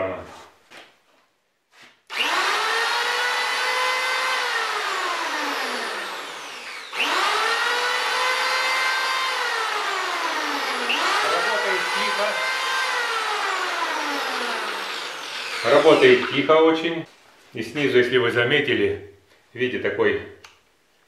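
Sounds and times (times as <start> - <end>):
electric planer whining: 2.1 - 16.6.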